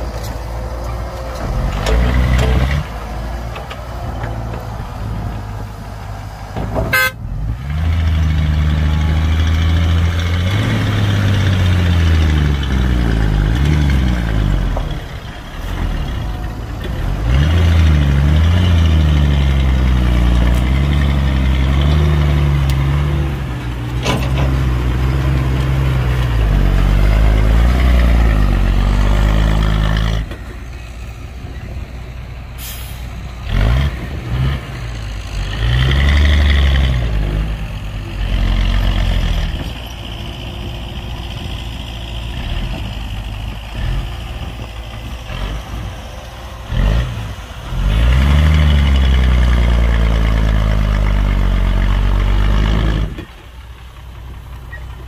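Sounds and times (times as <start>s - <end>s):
heavy diesel engine running: 0.0s - 55.0s
air brake hiss: 32.6s - 33.2s.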